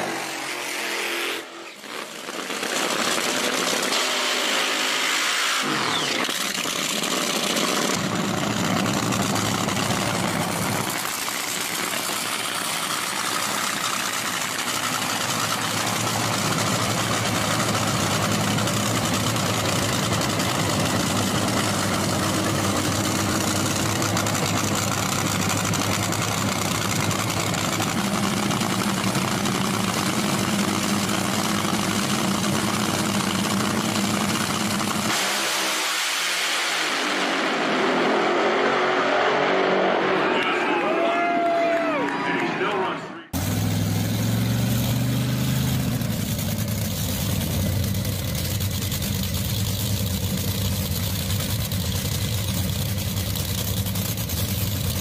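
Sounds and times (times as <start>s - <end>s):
dragster engine running: 1.7s - 4.4s, 5.7s - 35.3s, 43.4s - 55.0s.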